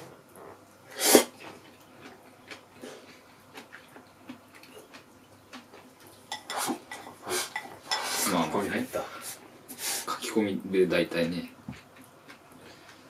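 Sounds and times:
person sneezing or snorting: 0:00.9 - 0:01.3.

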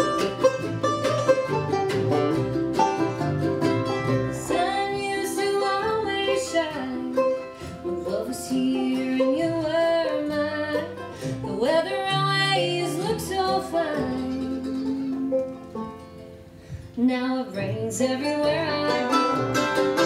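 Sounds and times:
strummed acoustic guitar: 0:00.0 - 0:16.9, 0:17.5 - 0:20.0
banjo: 0:00.0 - 0:20.0
fiddle melody: 0:00.0 - 0:20.0
upright bass: 0:00.0 - 0:20.0.

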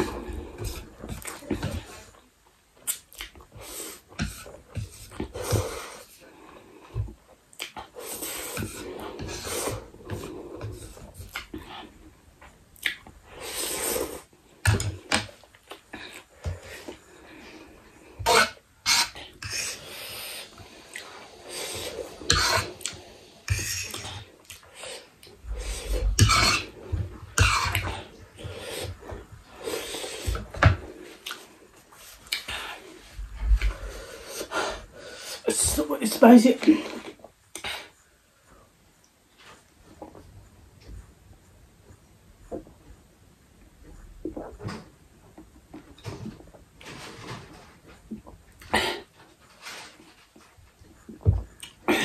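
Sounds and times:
person slurping noodles: 0:12.8 - 0:17.0, 0:17.6 - 0:31.6.

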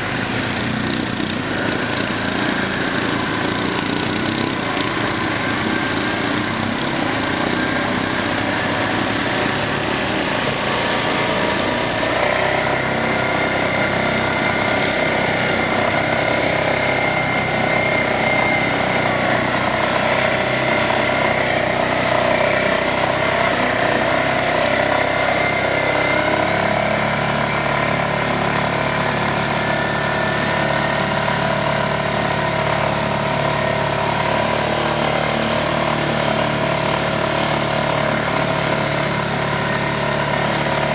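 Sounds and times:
quad engine running: 0:00.0 - 0:40.9.

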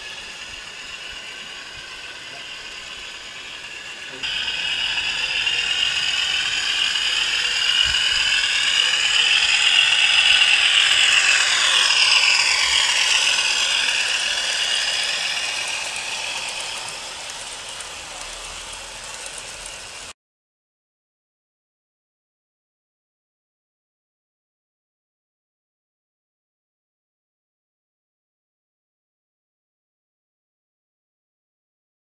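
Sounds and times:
model train whirring and clattering: 0:00.0 - 0:20.2.

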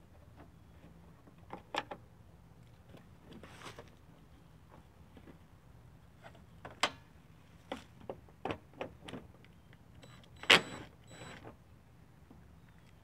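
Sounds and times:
electric drill motor whirring: 0:10.1 - 0:11.4.

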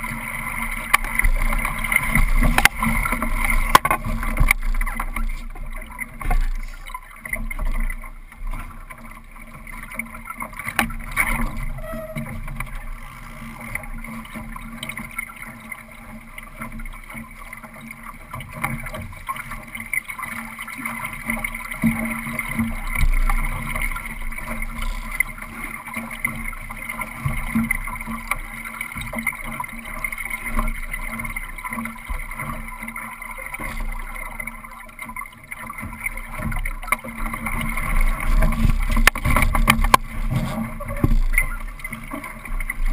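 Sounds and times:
water rushing along hull: 0:00.0 - 0:42.9
wind rumbling on microphone: 0:35.9 - 0:42.9
knocks on boat: 0:38.4 - 0:41.4.

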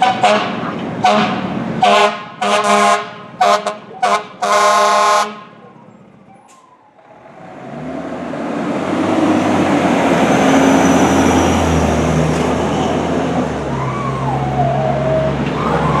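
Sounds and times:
diesel engine and tyres passing: 0:00.0 - 0:16.0
faint wavering siren: 0:13.7 - 0:16.0.

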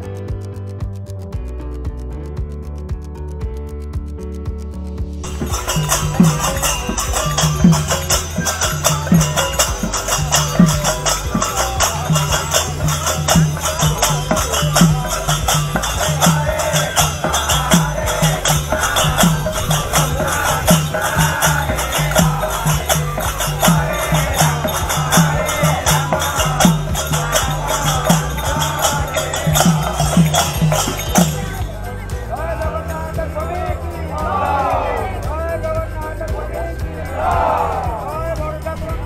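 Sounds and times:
low drumbeats: 0:00.3 - 0:39.0
small hand cymbals: 0:05.2 - 0:33.2
group singing a chant: 0:05.2 - 0:35.6, 0:36.4 - 0:38.5.

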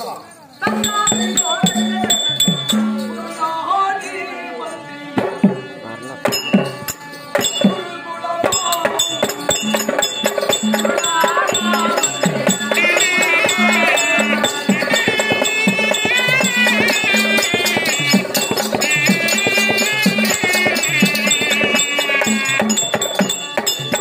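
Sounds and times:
small hand cymbals: 0:00.4 - 0:03.6, 0:06.2 - 0:24.0
barrel drums: 0:00.6 - 0:03.2, 0:05.2 - 0:24.0
high melody line: 0:06.2 - 0:24.0.

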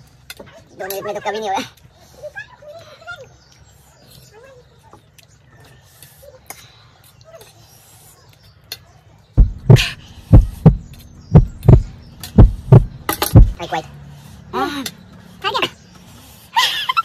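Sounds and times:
heavy thumps: 0:09.4 - 0:13.6.

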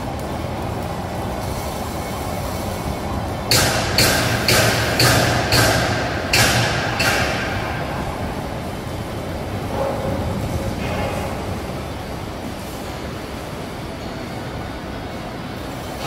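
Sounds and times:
machinery rumble: 0:00.0 - 0:16.0
sharp metal bangs: 0:03.5 - 0:08.3.

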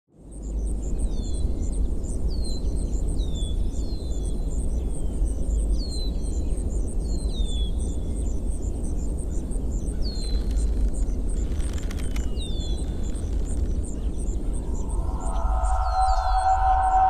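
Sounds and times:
insects chirping: 0:07.9 - 0:17.0
low rumble: 0:14.2 - 0:17.0
bird short falling whistles: 0:14.6 - 0:17.0.

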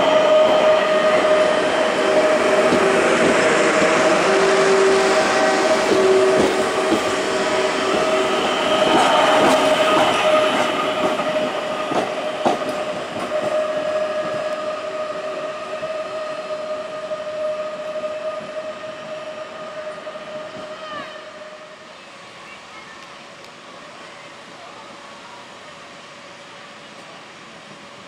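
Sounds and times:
electric train motor whine: 0:00.0 - 0:20.7
train wheels clicking over rail joints: 0:00.4 - 0:15.0.

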